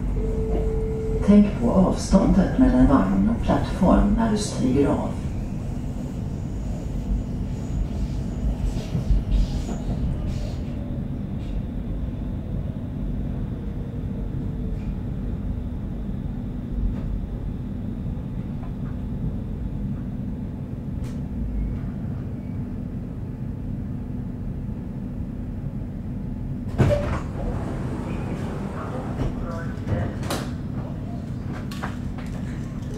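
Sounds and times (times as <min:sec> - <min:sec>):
train ventilation hum: 0:00.0 - 0:32.9
train doors opening with clunk: 0:00.1 - 0:03.0, 0:26.6 - 0:32.9.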